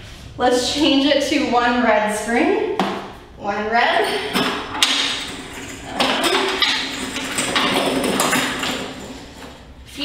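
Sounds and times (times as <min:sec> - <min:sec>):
metal springs clinking and rattling: 0:04.0 - 0:09.6.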